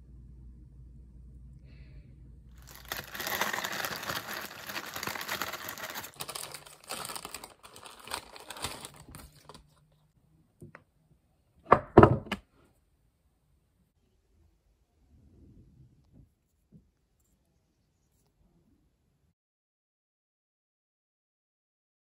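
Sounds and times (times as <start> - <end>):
plastic packaging crinkling: 2.6 - 9.8.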